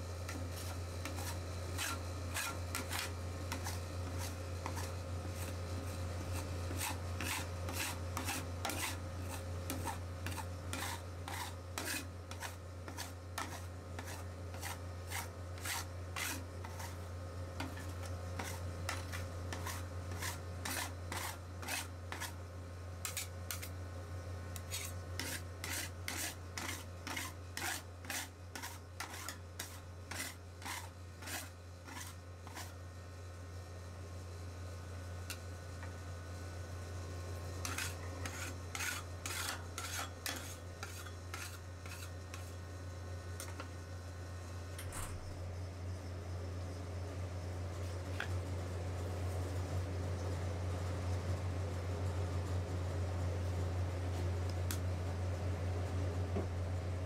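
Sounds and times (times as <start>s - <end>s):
metal spatula scraping ice cream: 0.3s - 22.4s, 23.0s - 23.7s, 24.6s - 32.8s, 37.6s - 42.6s.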